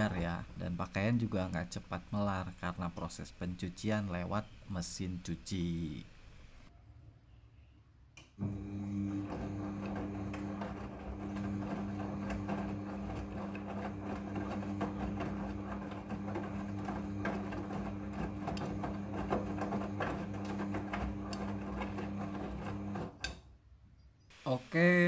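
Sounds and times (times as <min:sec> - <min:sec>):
washing machine motor hum: 0:08.4 - 0:23.2.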